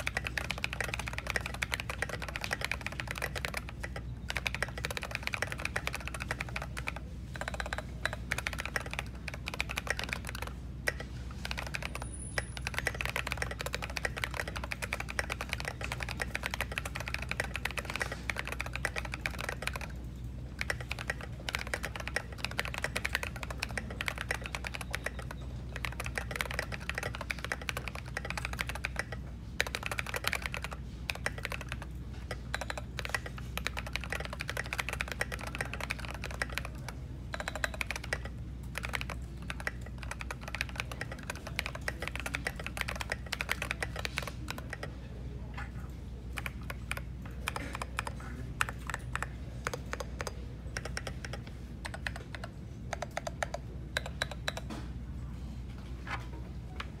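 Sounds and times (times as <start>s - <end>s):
mechanical keyboard typing: 0.0s - 45.0s, 46.1s - 54.8s
steady low hum: 0.0s - 57.0s.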